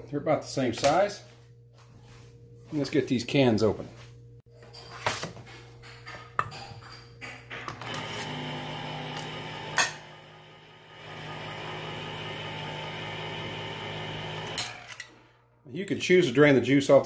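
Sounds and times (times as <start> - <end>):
electric can opener whirring: 7.6 - 15.4.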